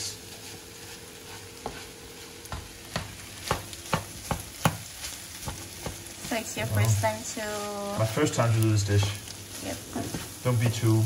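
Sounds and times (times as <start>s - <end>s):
sizzle of frying: 0.0s - 11.0s
spatula tapping frying pan: 1.3s - 6.4s.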